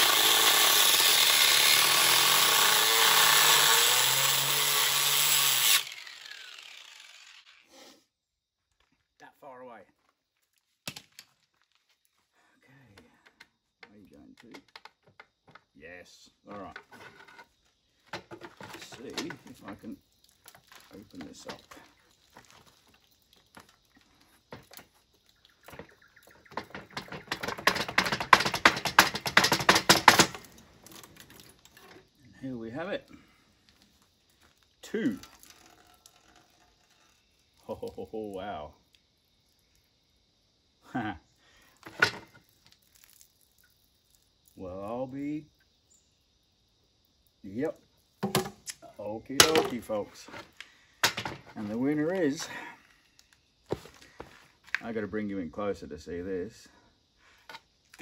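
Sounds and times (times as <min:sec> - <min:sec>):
grinder disc winding down whine: 0:00.0 - 0:07.7
angle grinder cutting metal: 0:00.0 - 0:07.8.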